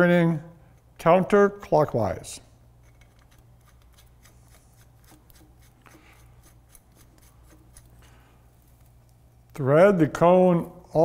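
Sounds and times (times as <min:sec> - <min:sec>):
small metallic ticks and scrapes: 0:02.8 - 0:09.2.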